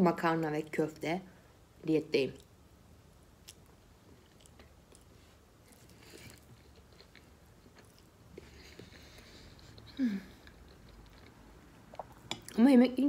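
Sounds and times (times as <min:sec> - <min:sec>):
faint chewing: 0:03.4 - 0:12.6.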